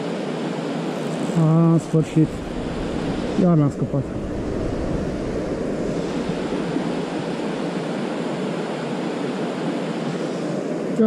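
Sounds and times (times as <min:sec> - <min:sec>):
wind rumbling on microphone: 0:01.0 - 0:09.3.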